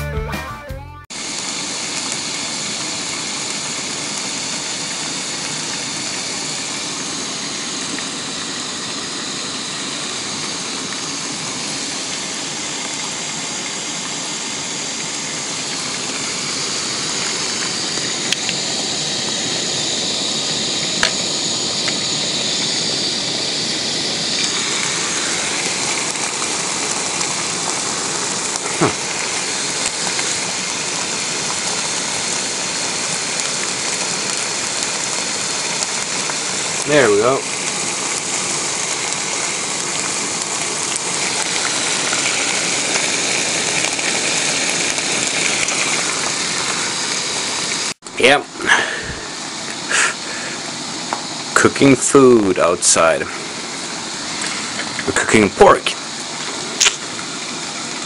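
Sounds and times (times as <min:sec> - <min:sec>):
pork sizzling in frying pans: 0:01.1 - 0:58.0
fat popping: 0:28.5 - 0:29.3, 0:56.8 - 0:57.1.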